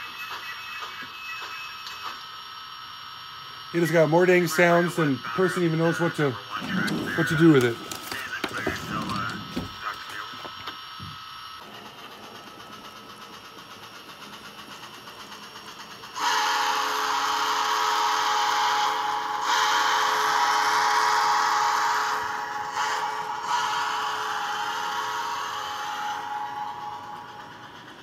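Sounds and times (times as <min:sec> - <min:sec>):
steam engine chuffing: 0:03.8 - 0:10.6, 0:11.6 - 0:28.0
steam whistle blasts: 0:16.2 - 0:27.4.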